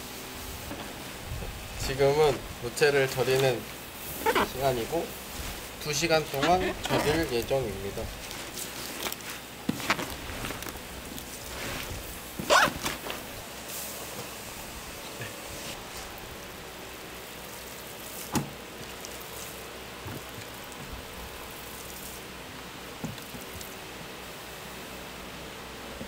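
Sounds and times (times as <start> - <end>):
background hiss: 0.0 - 26.0.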